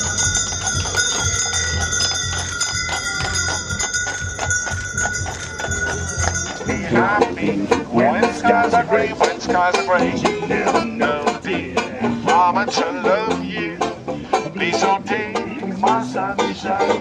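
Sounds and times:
harness bells ringing: 0.0 - 7.9
banjo and tuba music: 0.0 - 17.0
hooves clip-clopping on pavement: 0.0 - 17.0.

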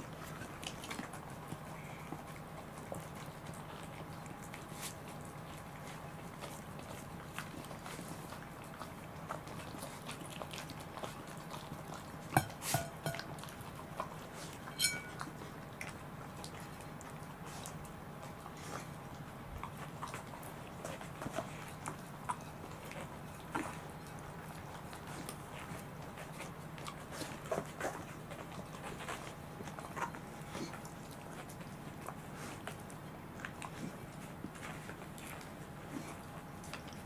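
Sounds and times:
dogs licking plates: 0.0 - 37.0
plates clinking on floor: 12.4 - 13.3, 14.7 - 15.3.

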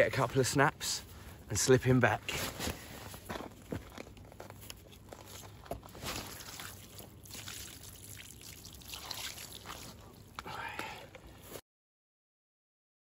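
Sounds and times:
water splashing and trickling: 4.9 - 11.0.

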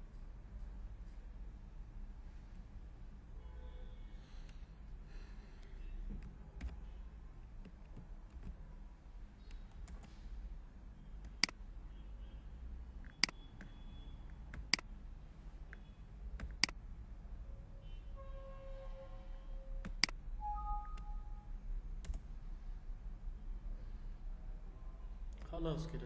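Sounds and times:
low steady hum: 0.0 - 26.0
computer mouse clicking: 22.0 - 22.2.

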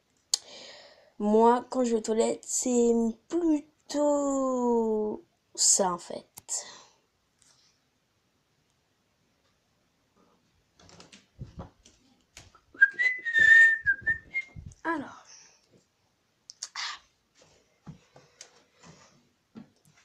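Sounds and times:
rustling and knocking handling phone: 10.8 - 12.6
person whistling a tune: 12.8 - 14.7.

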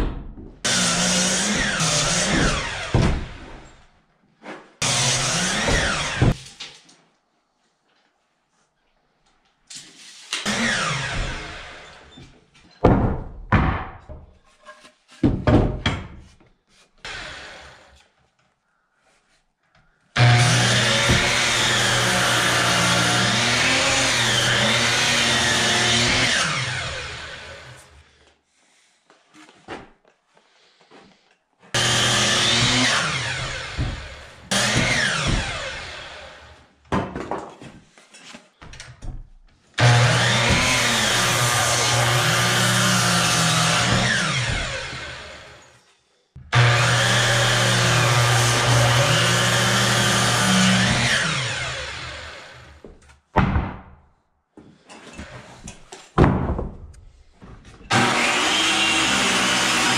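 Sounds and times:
saw cutting through wood: 0.6 - 3.7, 4.8 - 6.4, 10.3 - 12.2, 17.0 - 18.1, 20.1 - 28.0, 31.7 - 36.7, 39.8 - 45.8, 46.4 - 52.9, 57.9 - 59.9
miter saw motor whining: 39.8 - 45.6.

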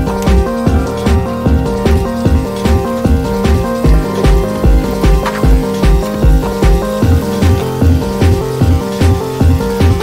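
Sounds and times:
electronic music with bass drum: 0.0 - 10.0.

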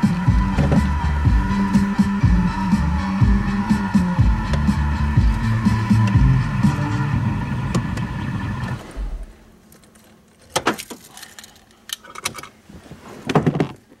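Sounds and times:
car engine idling: 0.0 - 9.6.

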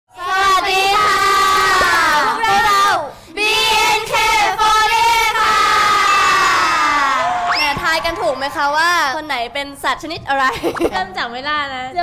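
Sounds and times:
women chanting a greeting: 0.1 - 7.0.

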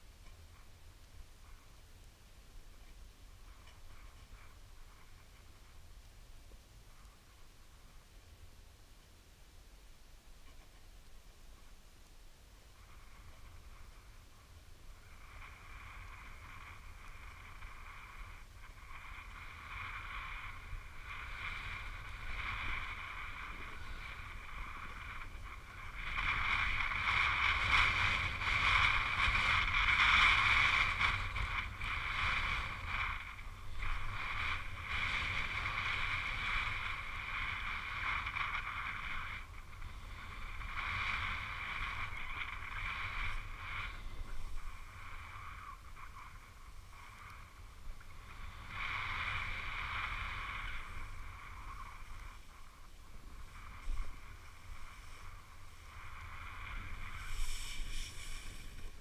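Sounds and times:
wind rumble on microphone: 0.0 - 59.0
skis scraping on snow: 12.8 - 59.0.

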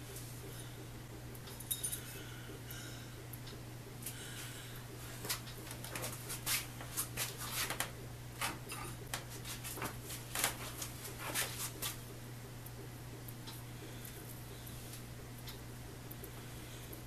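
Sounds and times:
cloth rag rubbing on workbench: 6.2 - 7.8.

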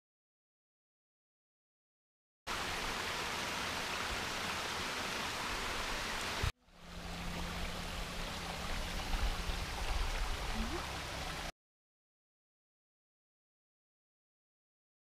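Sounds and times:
stream running over boulders: 2.5 - 11.5.

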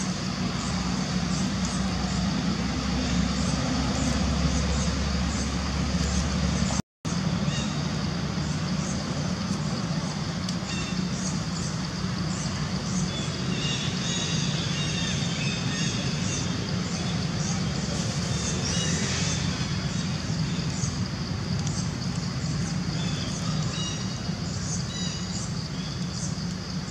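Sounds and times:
low rumbling background noise: 0.0 - 26.9.

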